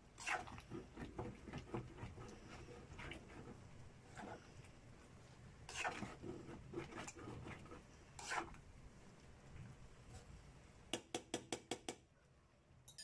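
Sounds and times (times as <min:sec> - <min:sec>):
metal spoon stirring stew: 0:00.1 - 0:04.5, 0:05.7 - 0:08.6
spoon scraping pot: 0:00.2 - 0:04.8, 0:05.7 - 0:08.6.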